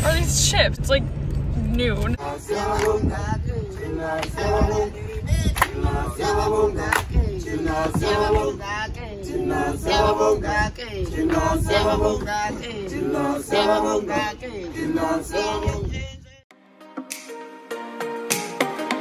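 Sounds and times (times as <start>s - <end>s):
several voices singing: 2.1s - 16.4s.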